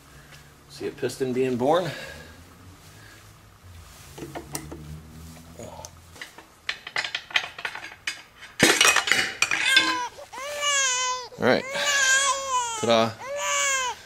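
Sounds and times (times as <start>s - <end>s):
metal clinks and knocks: 6.1s - 10.1s
rattling metal knocks: 6.2s - 10.0s.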